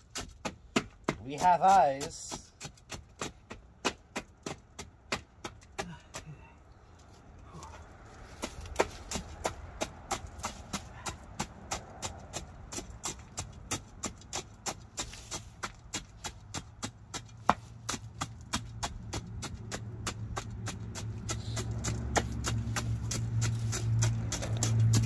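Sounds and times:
steel bar jabbing into gravel: 0:07.7 - 0:25.0.

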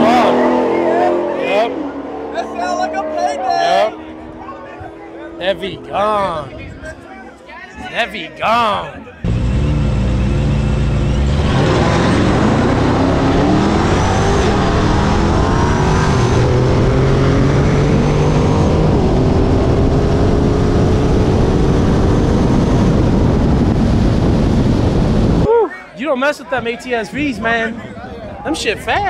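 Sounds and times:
car engine at full throttle: 0:00.0 - 0:07.4, 0:09.1 - 0:25.5
wind rush: 0:11.6 - 0:25.6.

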